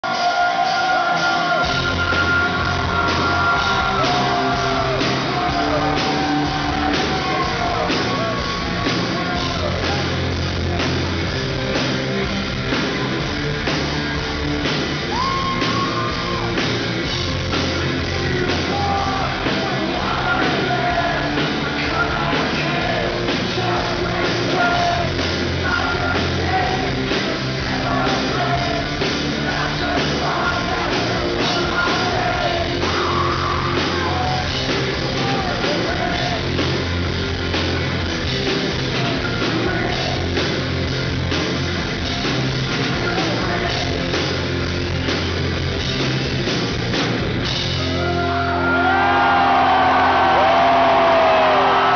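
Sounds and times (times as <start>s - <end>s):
man singing: 0.0s - 10.2s, 18.0s - 36.6s, 38.9s - 40.4s, 42.7s - 44.1s
drums: 0.0s - 51.9s.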